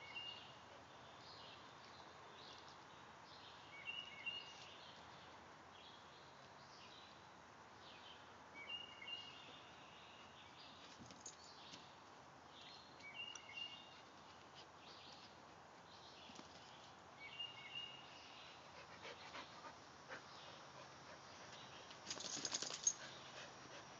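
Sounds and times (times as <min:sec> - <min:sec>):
dogs scuffling and clicking: 0:21.9 - 0:23.2.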